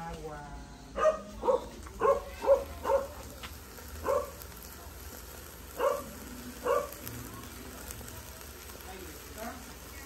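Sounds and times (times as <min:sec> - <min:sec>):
dog barking: 0:01.0 - 0:03.2, 0:04.0 - 0:04.4, 0:05.8 - 0:07.0.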